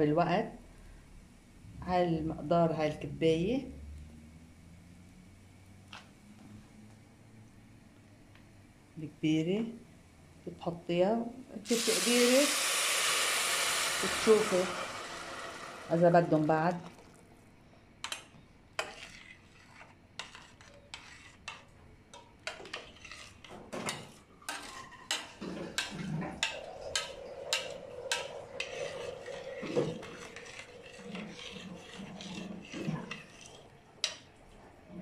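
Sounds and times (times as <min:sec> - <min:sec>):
metal spoon scraping a pot: 0:18.8 - 0:21.7, 0:22.4 - 0:34.3.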